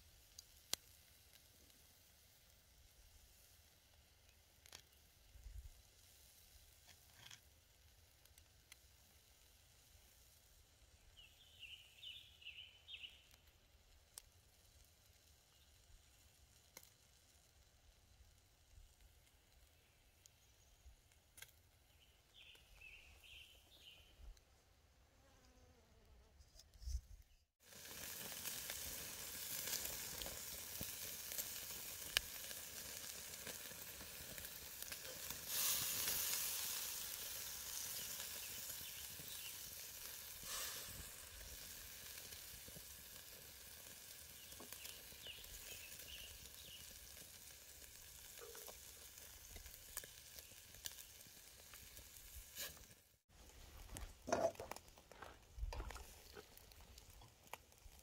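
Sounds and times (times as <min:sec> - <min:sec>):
food sizzling in a pan: 0:27.6 - 0:53.2.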